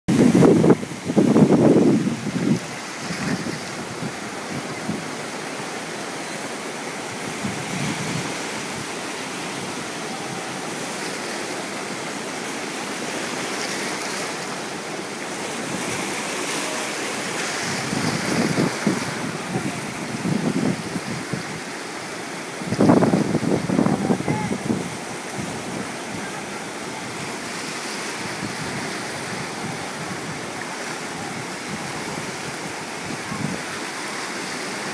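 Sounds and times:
wind buffeting microphone: 0.1 - 5.4, 7.0 - 12.4, 17.2 - 33.8
sea surf breaking: 0.1 - 34.9.

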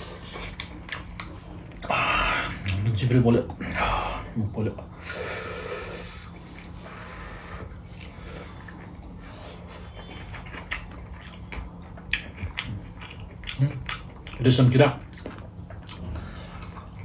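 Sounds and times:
chewing with mouth clicks: 0.0 - 1.9, 2.6 - 3.0, 7.6 - 17.0
low steady hum: 0.0 - 17.0.

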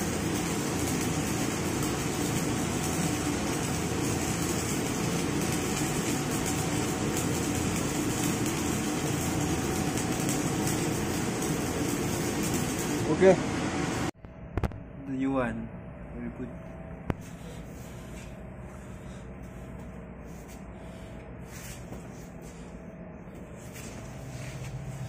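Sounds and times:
welding arc hissing: 0.0 - 14.1
low steady hum: 0.0 - 25.0.

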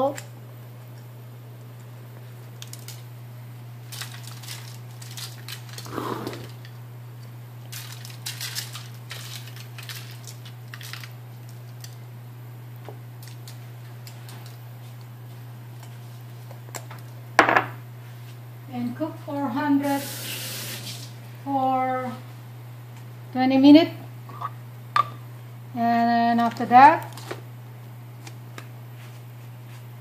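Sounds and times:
salt grinder crunching: 3.9 - 6.7.

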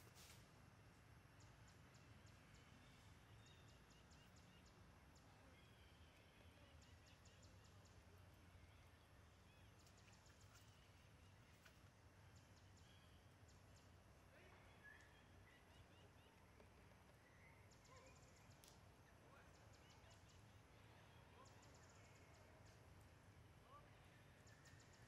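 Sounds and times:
faint chirps: 12.6 - 22.8.

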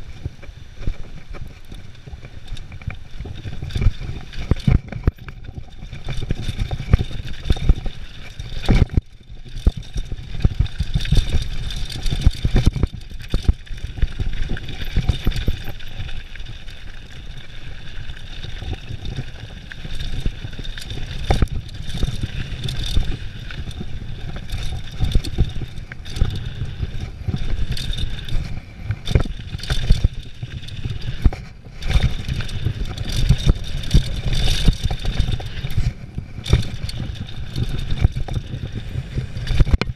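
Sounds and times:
bike rattling and clattering: 0.0 - 39.9
wind rumbling on microphone: 0.0 - 39.9.

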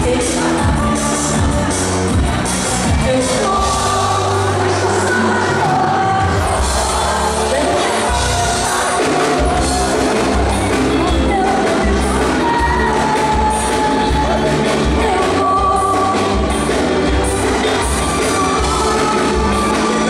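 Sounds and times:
live calypso band through pa: 0.0 - 20.0
person singing: 0.0 - 20.0.

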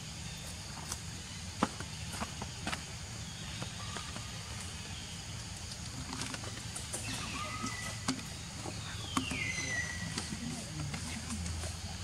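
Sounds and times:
high whistled calls falling: 8.9 - 10.5.

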